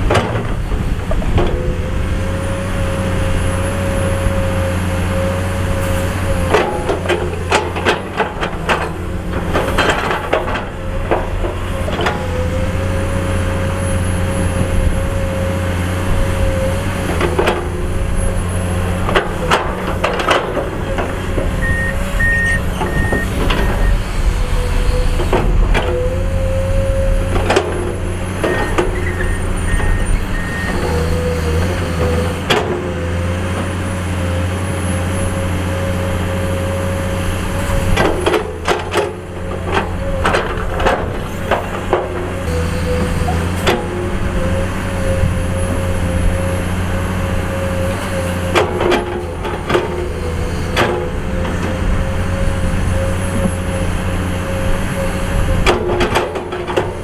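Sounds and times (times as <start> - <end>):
excavator diesel engine whining: 0.0 - 57.0
warning beeps: 21.6 - 24.0.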